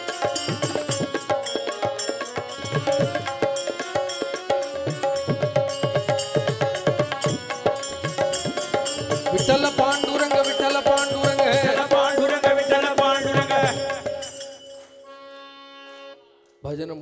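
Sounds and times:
hand percussion: 0:00.0 - 0:15.4
man singing: 0:07.3 - 0:14.6.

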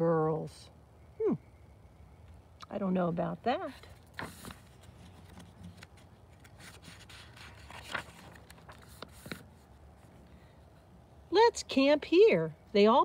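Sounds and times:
paper page turning: 0:03.9 - 0:10.1.

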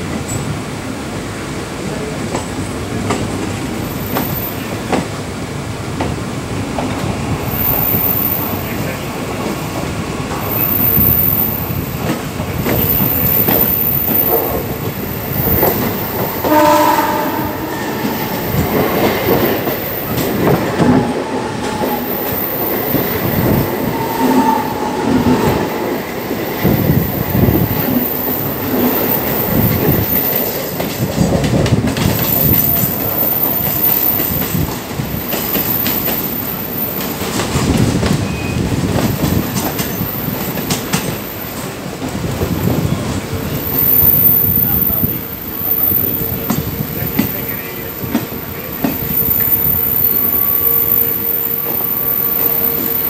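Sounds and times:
train wheels rumbling and clattering: 0:00.0 - 0:53.0
train horn: 0:16.4 - 0:18.6, 0:20.4 - 0:22.3, 0:23.3 - 0:25.9.

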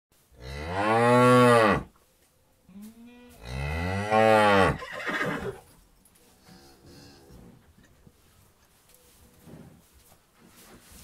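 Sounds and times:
cow mooing: 0:03.0 - 0:04.8.

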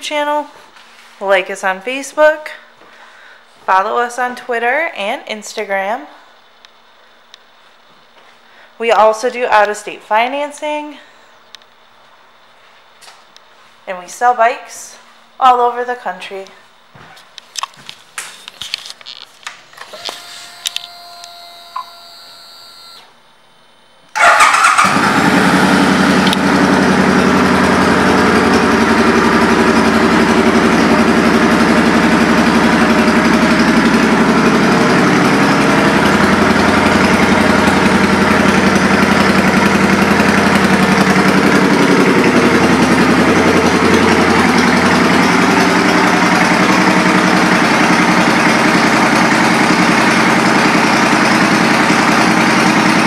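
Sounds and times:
electric starter cranking: 0:19.0 - 0:23.1, 0:24.2 - 0:53.0
motorcycle engine idling loudly: 0:24.2 - 0:53.0.

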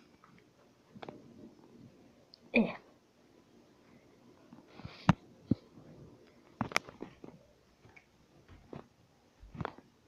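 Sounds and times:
faint clicks and taps: 0:00.1 - 0:01.2, 0:04.5 - 0:09.9.

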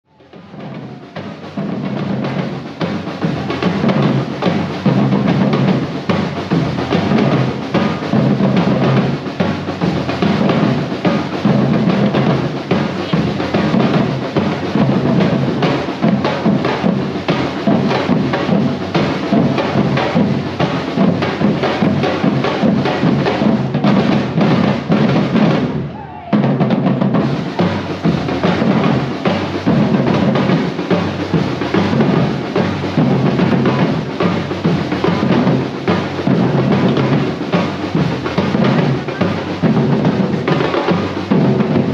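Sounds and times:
drum-heavy music: 0:00.1 - 0:41.9.

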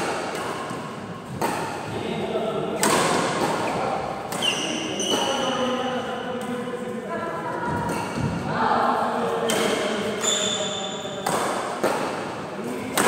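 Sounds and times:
shoes squeaking on court floor: 0:03.6 - 0:05.9, 0:10.1 - 0:11.4.

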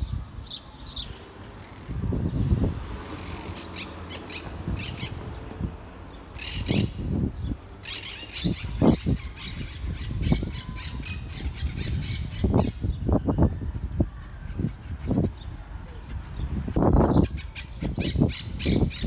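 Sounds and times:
parakeets squawking: 0:07.8 - 0:12.8.

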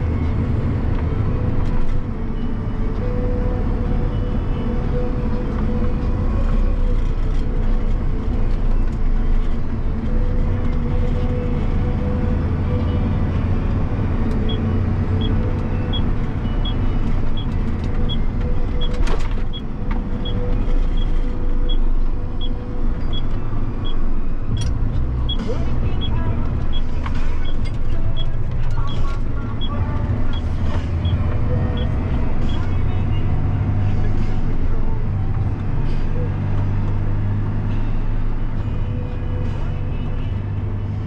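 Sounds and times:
tractor diesel engine running: 0:00.0 - 0:41.0
turn indicator ticking: 0:12.7 - 0:33.8.

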